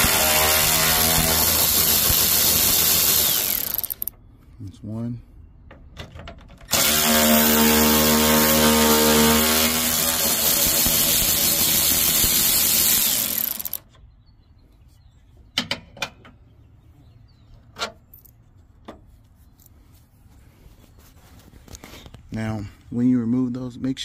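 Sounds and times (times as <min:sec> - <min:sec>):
cordless ratchet running: 0:01.1 - 0:04.1, 0:09.9 - 0:13.8.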